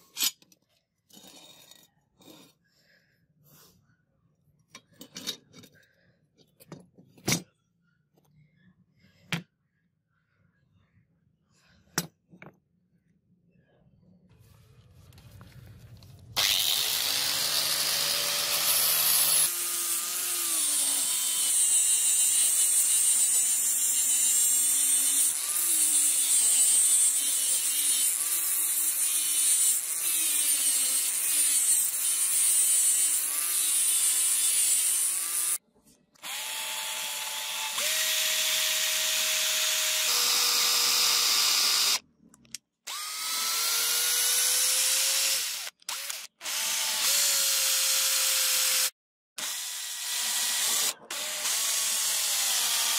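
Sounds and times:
angle grinder sanding metal: 16.4s - 35.6s
power drill boring into wood: 16.4s - 35.6s, 36.2s - 42.0s, 42.9s - 52.9s.

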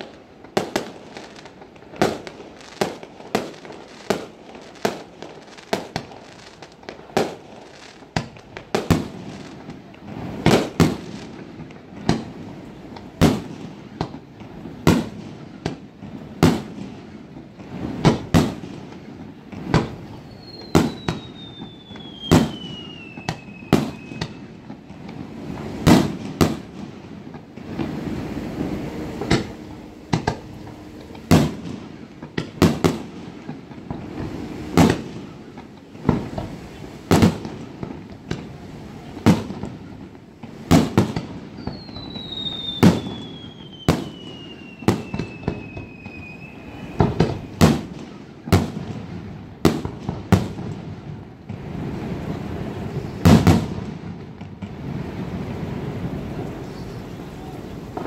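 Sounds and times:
fireworks bursting with bangs: 0.0s - 58.0s
firework whistle gliding down: 19.8s - 37.4s, 41.2s - 47.9s, 54.9s - 58.0s.

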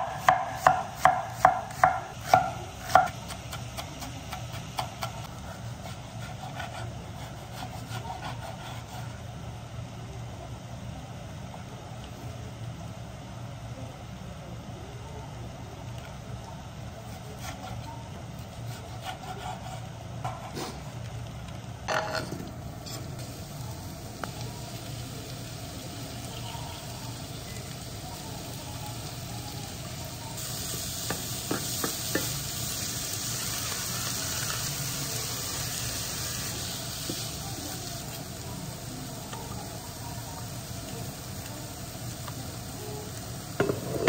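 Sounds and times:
meat sizzling in a frying pan: 23.2s - 44.0s.

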